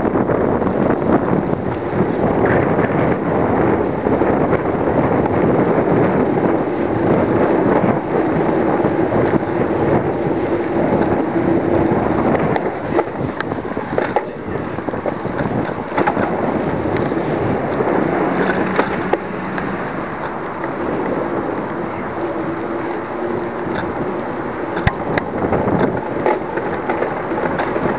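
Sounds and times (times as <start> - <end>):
wind buffeting microphone: 0.0 - 27.9.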